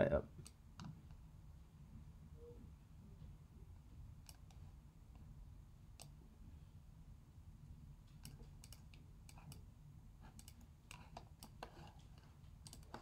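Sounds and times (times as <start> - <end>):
computer mouse clicks: 0.4 - 1.2, 4.2 - 4.7, 5.9 - 6.2, 8.1 - 9.7, 10.3 - 13.0.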